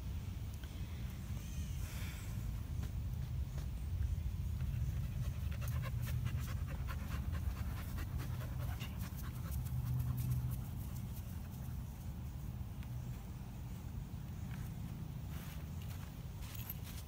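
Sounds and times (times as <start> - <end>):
dog panting: 4.6 - 11.7.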